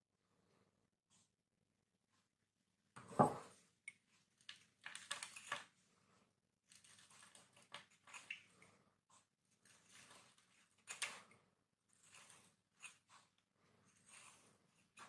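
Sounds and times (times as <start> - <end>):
knife scraping soap: 6.7 - 15.0.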